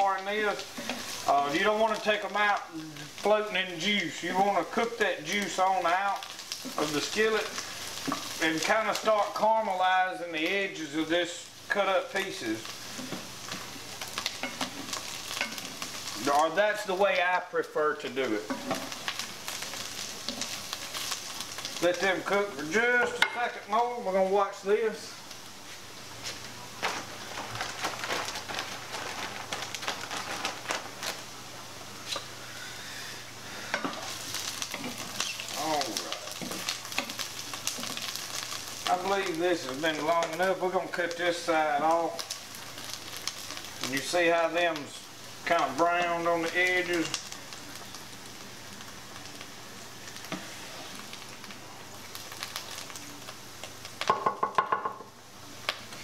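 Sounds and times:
mushrooms sizzling in grease: 0.0 - 56.0
spoon stirring in a pan: 7.5 - 8.4, 12.6 - 16.2, 33.7 - 38.9.

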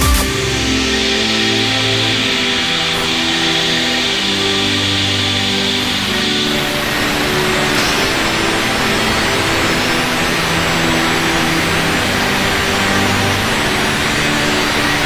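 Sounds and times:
angle grinder cutting steel: 0.3 - 15.0.

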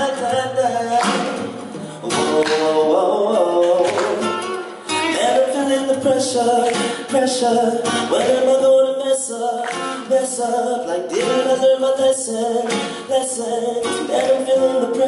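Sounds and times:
acoustic guitar playing: 0.0 - 15.0
man vocalizing wordlessly: 0.0 - 15.0.

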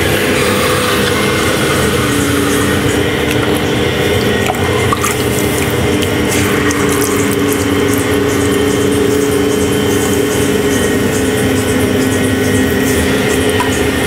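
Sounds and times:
potter's wheel hum: 0.0 - 14.0
hands squelching wet clay: 2.9 - 10.2.

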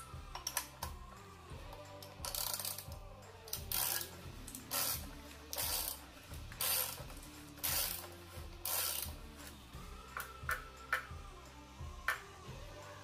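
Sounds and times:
socket ratchet clicking: 1.7 - 9.2.

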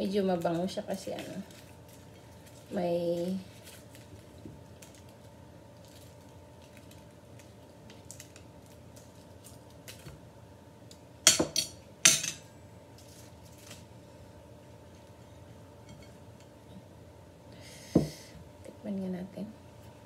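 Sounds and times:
dry leaf wrapper peeled off: 0.6 - 10.1, 13.0 - 13.9.

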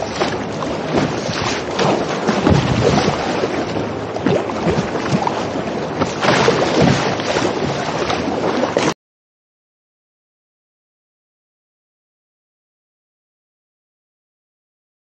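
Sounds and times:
wind buffeting the microphone: 0.0 - 8.9
waves splashing against a kayak: 0.0 - 9.0.

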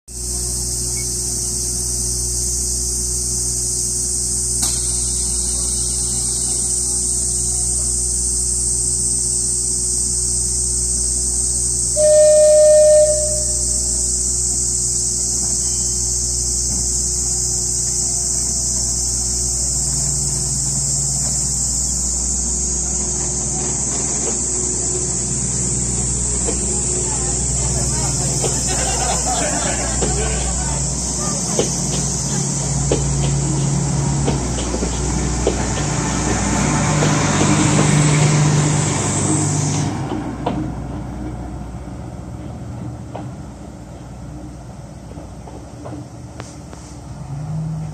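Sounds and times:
cicadas shrilling: 0.1 - 39.6
train engine rumble: 0.1 - 47.9
single click: 4.6 - 4.9.

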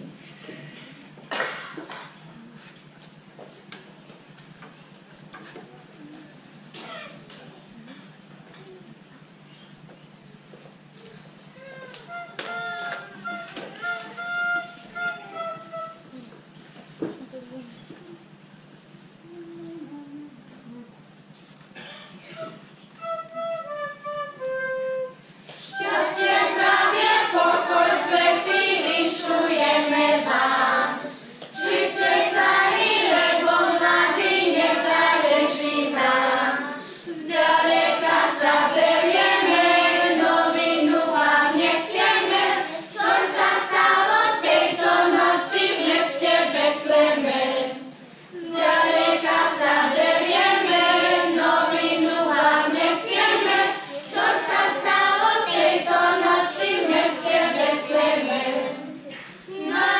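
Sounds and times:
children's choir singing: 24.4 - 59.9.

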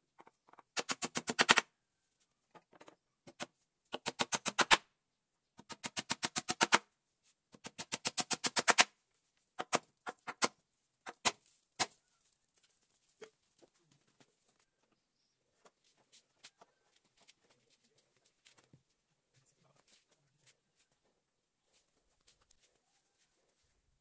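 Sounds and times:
hammer driving nails into wood: 0.5 - 1.7, 3.3 - 4.8, 5.6 - 6.9, 7.5 - 8.9, 9.6 - 12.0.

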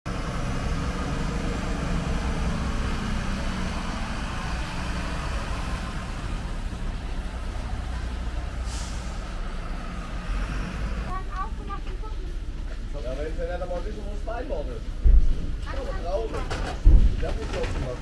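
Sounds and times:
truck engines idling: 0.1 - 18.0
short hiss: 8.6 - 9.4.

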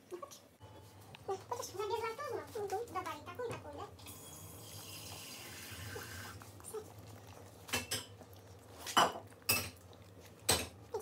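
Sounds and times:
dog eating: 4.7 - 11.0.

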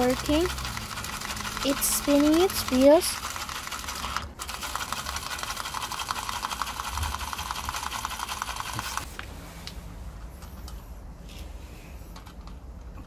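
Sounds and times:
toy motor whirring: 0.0 - 9.1.

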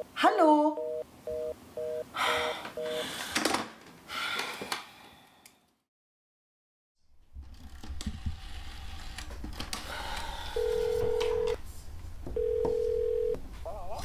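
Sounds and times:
line tone beeps: 0.8 - 3.0, 10.6 - 11.6.

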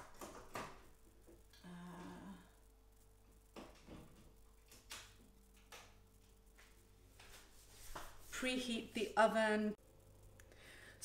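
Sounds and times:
faint steady hum: 0.0 - 11.0
woman humming hmm: 1.6 - 2.6.

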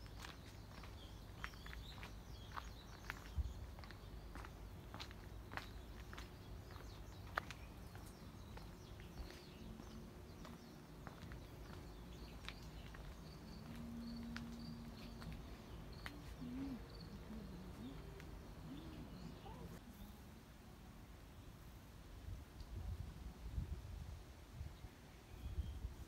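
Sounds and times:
soft bird calls: 0.0 - 20.2
low gliding calls: 13.4 - 19.8.

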